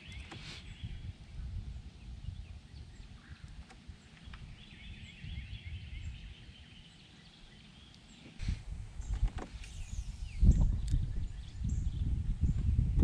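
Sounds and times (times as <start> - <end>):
wind buffeting microphone: 0.0 - 7.6, 8.4 - 13.0.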